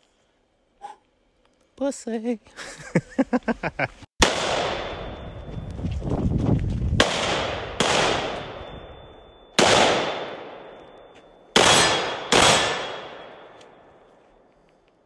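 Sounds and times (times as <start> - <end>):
gunshots with echo: 4.2 - 5.2, 7.0 - 8.7, 9.6 - 10.8, 11.6 - 13.5.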